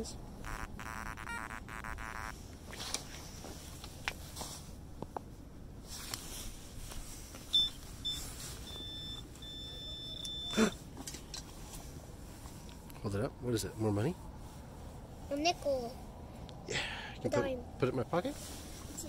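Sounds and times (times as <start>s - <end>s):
metal detector probe beeping: 0.4s - 2.3s, 7.6s - 10.6s.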